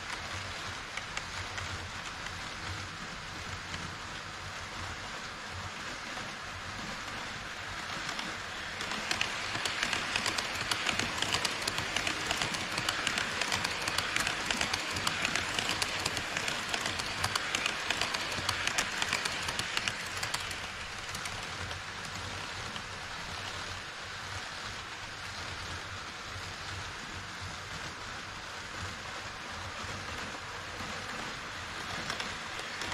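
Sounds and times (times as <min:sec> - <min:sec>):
model train running past: 0:00.0 - 0:32.9
wheels clicking over track joints: 0:08.0 - 0:22.1, 0:31.0 - 0:32.9.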